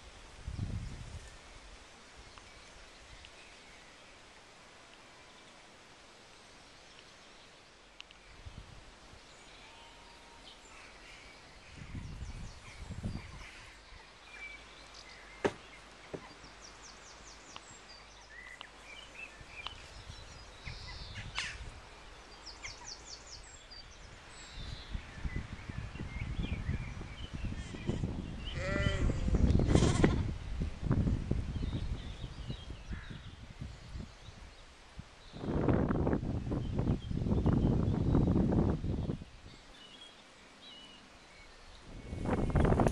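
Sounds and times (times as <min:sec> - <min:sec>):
wind rumble on microphone: 0:00.0 - 0:03.3, 0:08.2 - 0:09.3, 0:11.4 - 0:14.1, 0:19.1 - 0:40.0, 0:41.6 - 0:42.9
small birds trilling: 0:09.2 - 0:30.3
sheep bleating: 0:28.5 - 0:30.2.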